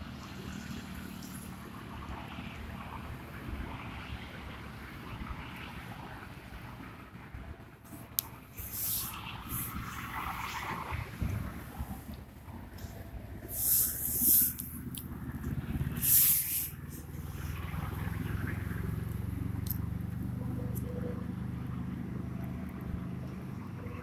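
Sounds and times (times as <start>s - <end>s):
rushing noise on microphone: 1.6s - 19.5s.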